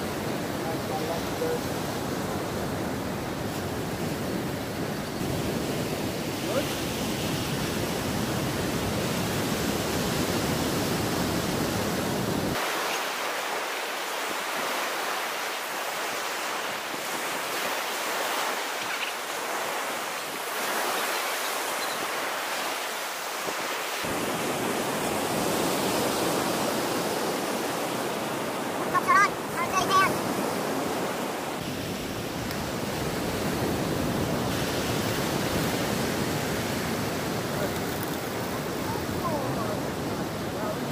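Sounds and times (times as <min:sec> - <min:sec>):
surf breaking on beach: 0:00.0 - 0:40.9.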